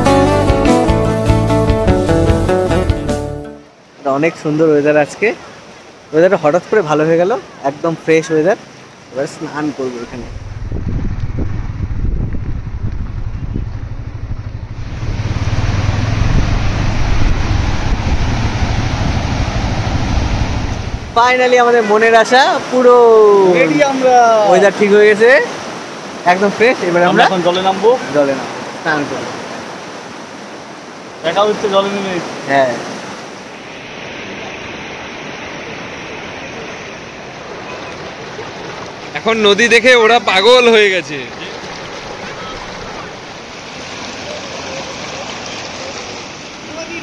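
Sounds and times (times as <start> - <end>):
wind rumbling on microphone: 10.1 - 21.2
river rushing over boulders: 13.8 - 47.0.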